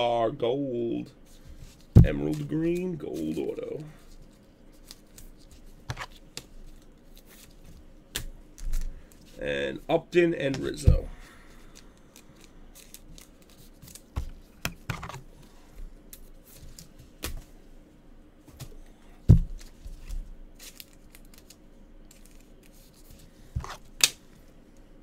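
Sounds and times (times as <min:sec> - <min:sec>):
cards shuffling: 0:01.3 - 0:09.4, 0:10.5 - 0:17.5, 0:19.5 - 0:24.3.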